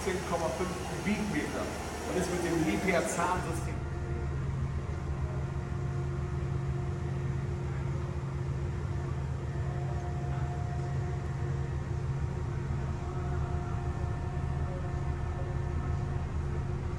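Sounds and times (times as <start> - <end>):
excavator engine and hydraulics: 0.0 - 4.5.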